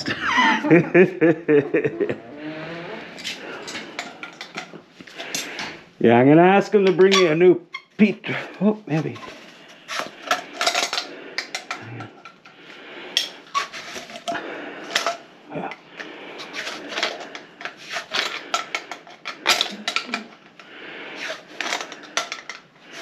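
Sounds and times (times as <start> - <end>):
clatter of hard parts handled: 3.2 - 5.8, 8.9 - 12.6, 13.2 - 15.8, 16.4 - 20.6, 21.2 - 23.0.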